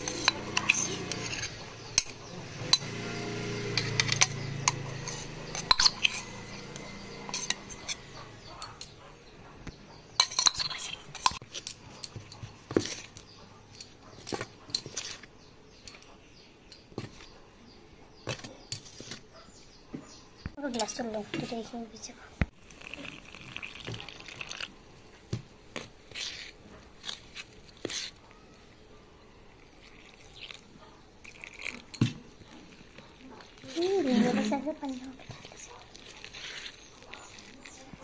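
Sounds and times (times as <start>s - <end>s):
metal spoon clinking on steel: 0.0s - 3.0s, 3.6s - 9.0s, 10.1s - 12.4s.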